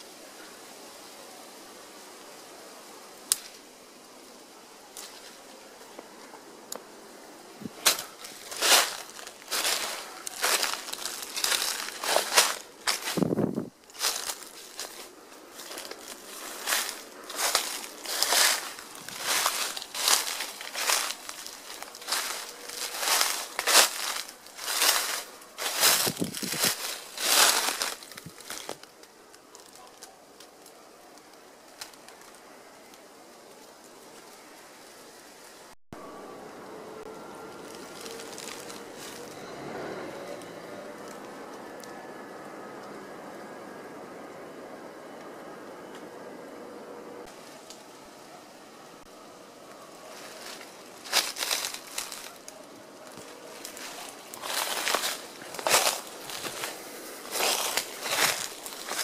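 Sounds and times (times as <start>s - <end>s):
faint hiss: 0.0s - 41.0s
twigs snapping: 3.2s - 3.7s, 7.7s - 33.1s, 37.5s - 39.4s, 50.2s - 59.0s
footsteps on dry leaves: 7.6s - 29.0s, 37.1s - 42.0s, 50.0s - 59.0s.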